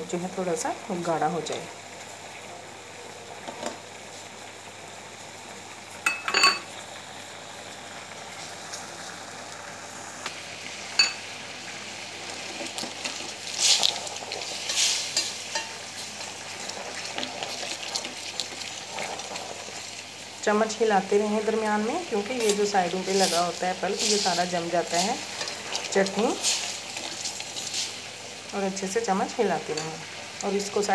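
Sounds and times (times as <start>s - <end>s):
chutney bubbling and sizzling: 0.0s - 30.9s
spoon clinking against pan: 6.1s - 6.7s, 11.0s - 11.2s
spoon scraping pan: 12.5s - 16.0s, 22.4s - 28.0s.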